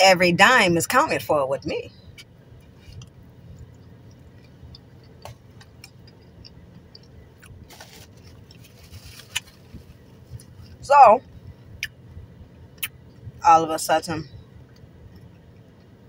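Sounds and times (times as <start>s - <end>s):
soft chewing: 2.1s - 10.8s
paper napkin rustling: 7.7s - 10.6s.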